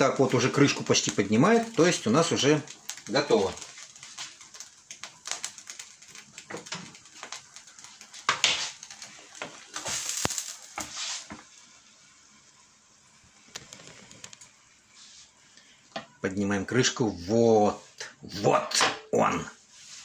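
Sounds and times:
light clicks and crackles: 0:00.0 - 0:11.0, 0:13.3 - 0:14.7
frying pan scraping on hob: 0:08.0 - 0:11.4.

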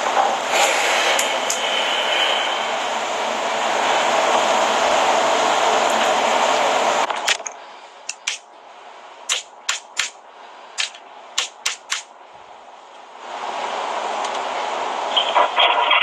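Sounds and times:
loud rushing hiss: 0:00.3 - 0:05.8, 0:07.6 - 0:08.5, 0:09.2 - 0:12.2
fingers tapping touchscreen: 0:08.1 - 0:08.4, 0:10.8 - 0:12.1.

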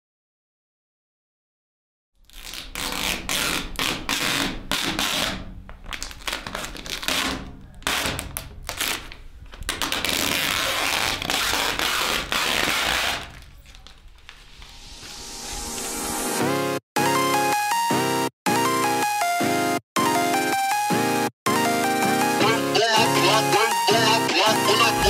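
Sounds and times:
plastic film peeling and crinkling: 0:02.2 - 0:16.0.

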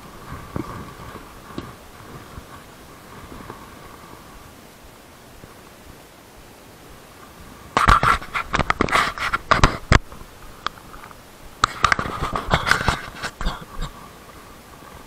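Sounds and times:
fingers scraping and tapping camera: 0:07.8 - 0:10.1, 0:10.7 - 0:13.6.

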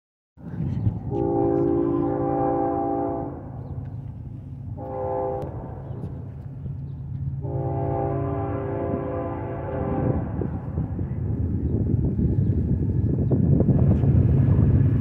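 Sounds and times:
train low rumble: 0:00.4 - 0:15.0
train air horn blasts: 0:01.1 - 0:03.6, 0:04.8 - 0:06.1, 0:07.4 - 0:10.9.

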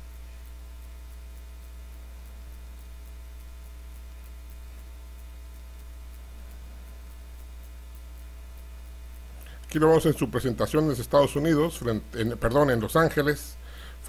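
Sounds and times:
electrical mains hum: 0:00.0 - 0:14.0
faint regular ticking: 0:00.0 - 0:14.0.

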